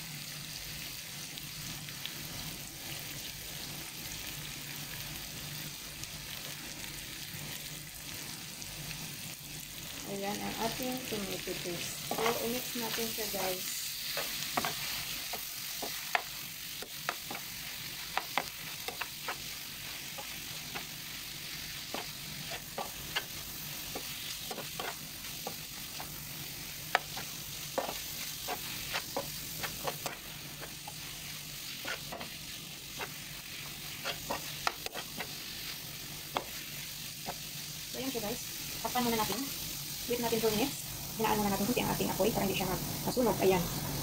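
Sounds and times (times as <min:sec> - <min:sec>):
shrimp sizzling in oil: 0:00.0 - 0:44.0
metal spatula scraping pan: 0:31.7 - 0:33.3, 0:33.9 - 0:35.4.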